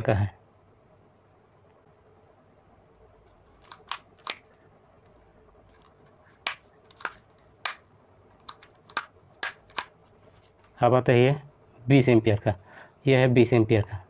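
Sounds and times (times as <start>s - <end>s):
plastic casing clicking: 5.8s - 7.8s, 8.4s - 9.9s.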